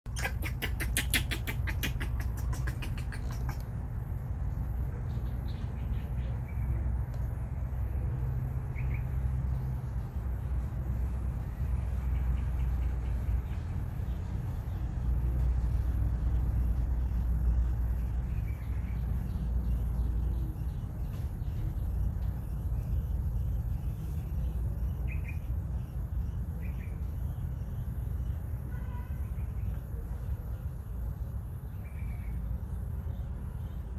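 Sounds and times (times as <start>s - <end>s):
bird chirps: 0.1s - 3.7s, 8.5s - 10.1s, 11.0s - 30.7s
low outdoor rumble: 0.1s - 33.9s.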